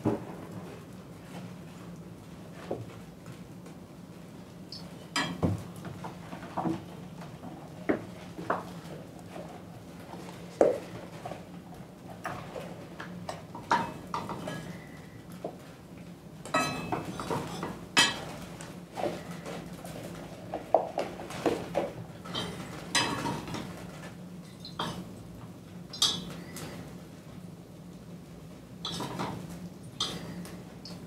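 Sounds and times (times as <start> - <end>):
metal utensils clinking on dishes: 16.5 - 18.3, 22.2 - 23.6, 25.9 - 26.3, 28.8 - 29.4, 30.0 - 30.4.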